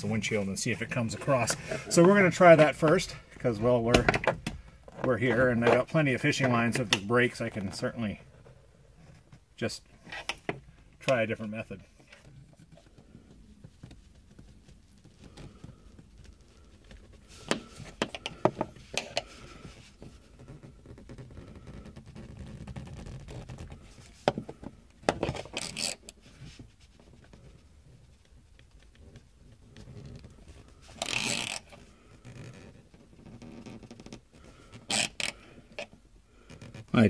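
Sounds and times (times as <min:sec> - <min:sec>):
fishing line scraping through glue: 0:29.8 - 0:37.0.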